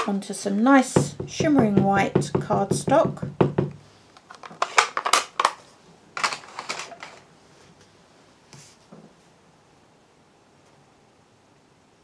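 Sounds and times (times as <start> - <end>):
stamp tapping on ink pad: 1.0 - 3.8.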